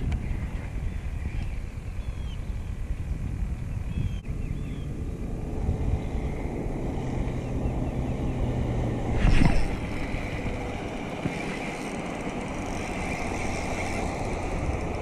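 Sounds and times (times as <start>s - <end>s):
wind rumble over water: 0.0s - 12.2s
distant motor engine hum: 0.0s - 15.0s
faint high bird chirps: 0.8s - 2.8s, 3.7s - 4.9s.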